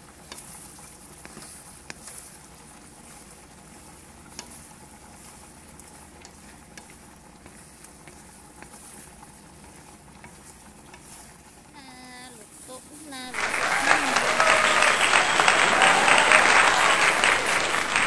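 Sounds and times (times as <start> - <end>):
shrimp sizzling in a frying pan: 0.0 - 13.3
wooden spatula clicking on pan: 0.1 - 2.3, 4.2 - 4.9, 5.7 - 11.4.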